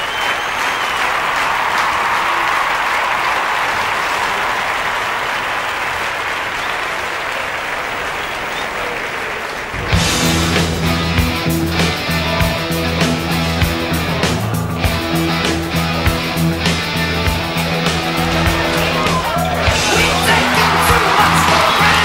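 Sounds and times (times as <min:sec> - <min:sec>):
crowd applauding: 0:00.0 - 0:22.0
rock music with guitar and bass: 0:09.8 - 0:22.0.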